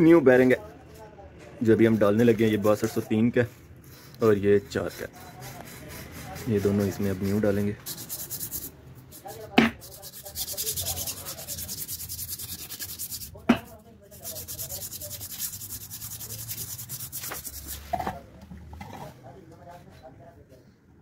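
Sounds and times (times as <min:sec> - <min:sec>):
sandpaper rasping on metal shaft: 0:01.6 - 0:17.9.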